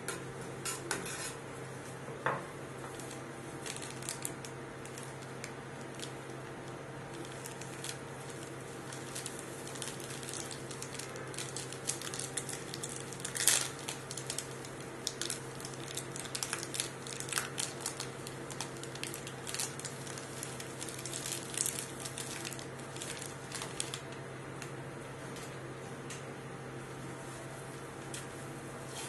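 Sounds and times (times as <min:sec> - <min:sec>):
steady low hum: 0:00.0 - 0:29.0
wrapper and gloves crinkling: 0:02.9 - 0:24.7.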